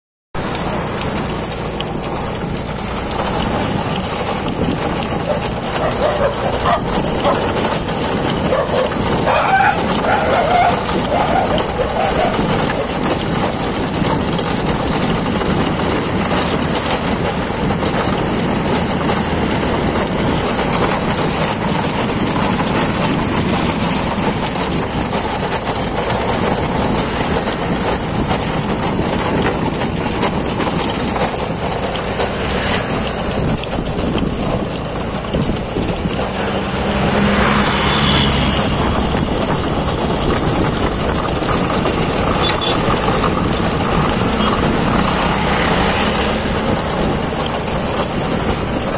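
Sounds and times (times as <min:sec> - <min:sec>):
cart wheels rolling on asphalt: 0:00.4 - 0:48.9
wooden cart body shaking: 0:00.4 - 0:48.9.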